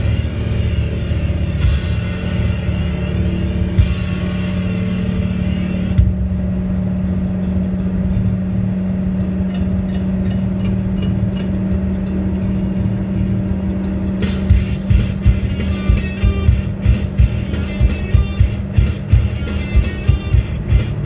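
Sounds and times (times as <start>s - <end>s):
low drone: 0.0s - 21.0s
higher layered tones: 9.8s - 21.0s.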